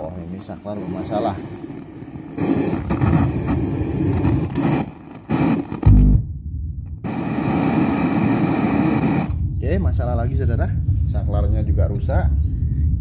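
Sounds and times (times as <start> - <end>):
speaker low rumbling drone: 5.3 - 13.0
loud low thump: 5.8 - 6.4.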